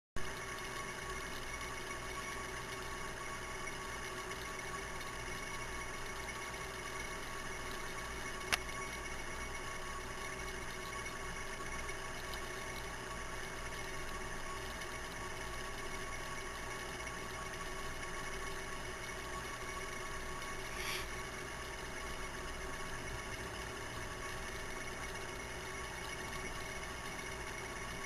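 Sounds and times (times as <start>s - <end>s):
mechanical hum with hiss: 0.2s - 28.0s
sharp click: 8.5s - 8.7s.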